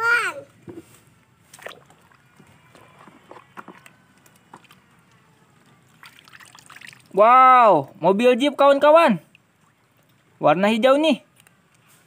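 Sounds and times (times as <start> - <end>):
water splashing in metal basin: 1.5 - 5.2, 5.8 - 7.3.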